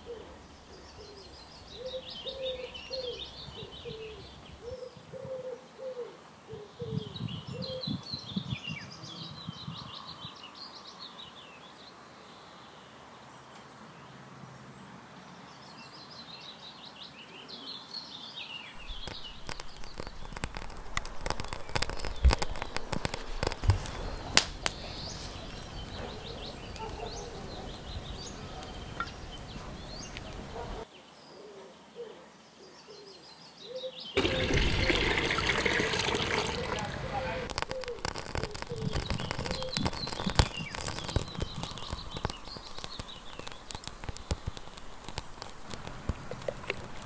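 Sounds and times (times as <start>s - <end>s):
birds chirping: 0.0s - 14.2s, 15.4s - 47.0s
wood fire crackling: 18.8s - 30.8s, 34.2s - 47.0s
liquid pouring into a pot: 34.2s - 41.0s.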